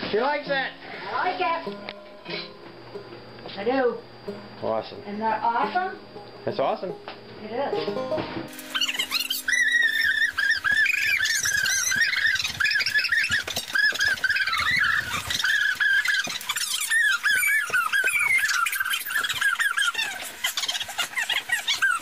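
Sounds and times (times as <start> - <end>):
dog whining: 8.7 - 22.0.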